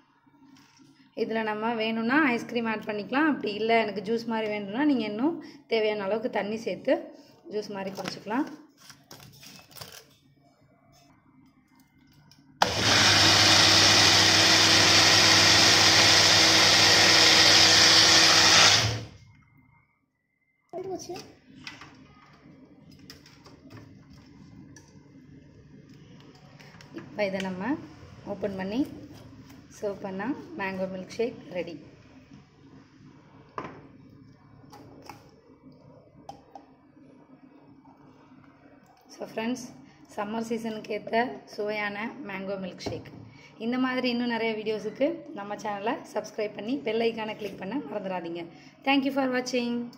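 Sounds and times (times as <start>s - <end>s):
blender motor running: 12.6s - 19.2s.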